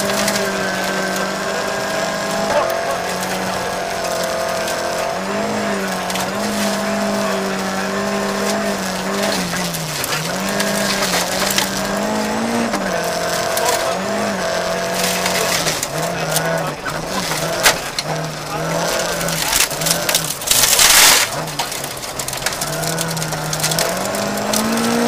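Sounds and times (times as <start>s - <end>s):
car engine at high revs: 0.0s - 25.0s
gravel hissing under car: 0.0s - 25.0s.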